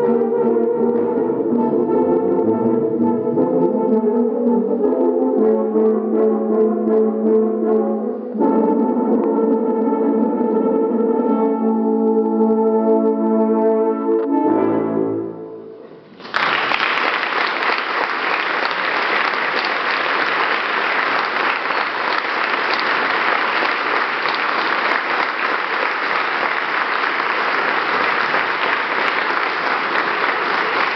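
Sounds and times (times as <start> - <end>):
audience applause: 16.2 - 30.9.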